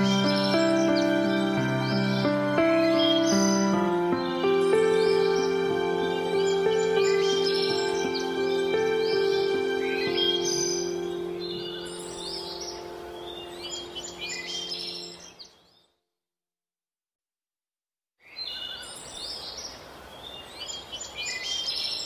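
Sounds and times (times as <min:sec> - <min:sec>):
soft sustained music pad: 0:00.0 - 0:15.4
birds chirping: 0:00.0 - 0:15.9.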